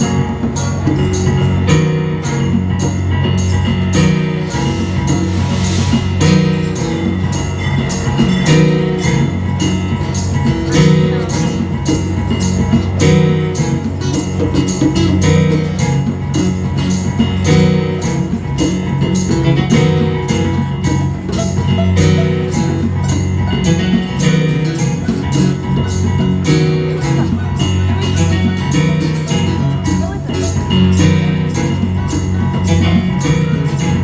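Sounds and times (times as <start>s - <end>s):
electric keyboard: 0.0s - 34.0s
hand drums: 0.0s - 34.0s
picked banjo: 0.0s - 34.0s.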